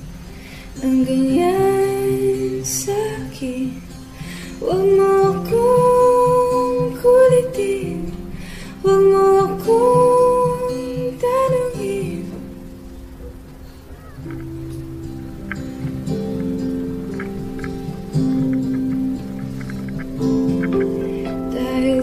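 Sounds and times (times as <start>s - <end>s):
strummed acoustic guitar: 0.0s - 22.0s
woman singing: 0.7s - 12.6s, 21.2s - 22.0s.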